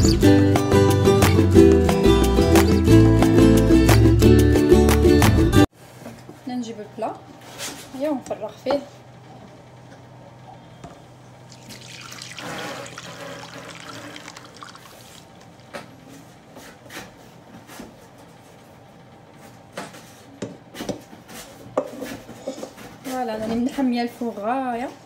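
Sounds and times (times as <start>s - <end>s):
batter pouring into a dish: 11.5s - 15.6s.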